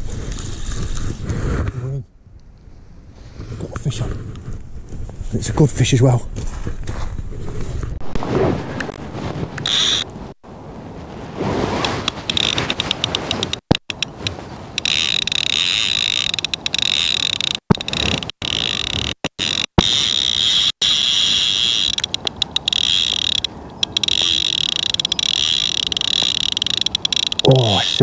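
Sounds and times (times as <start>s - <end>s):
fishing reel drag ratcheting: 9.6s - 10.1s, 11.8s - 28.0s.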